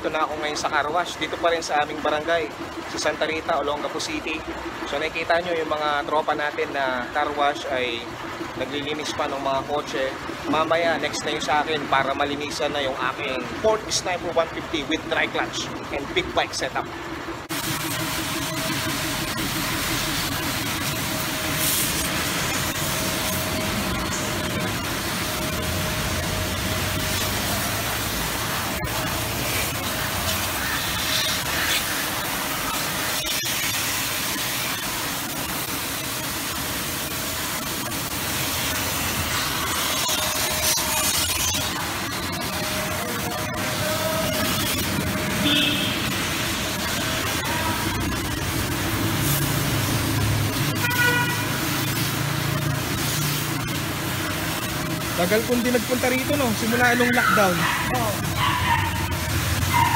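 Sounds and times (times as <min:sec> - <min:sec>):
pressure washer spraying water: 0:00.1 - 0:59.9
short horn beep: 0:45.3 - 0:46.1.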